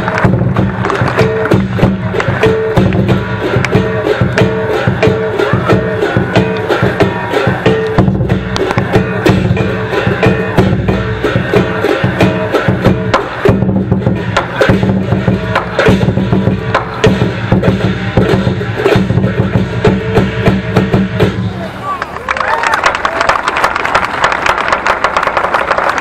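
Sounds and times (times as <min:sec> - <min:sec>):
large drum beaten rapidly: 0:00.0 - 0:21.6
cymbals clashing: 0:00.0 - 0:21.7.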